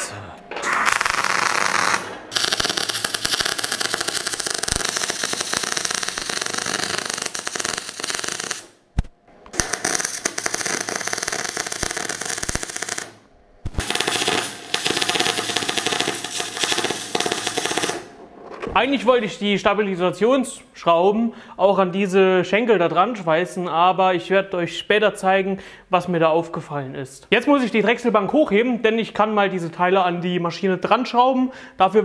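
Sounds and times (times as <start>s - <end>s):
welding arc crackling buzz: 0.6s - 18.2s.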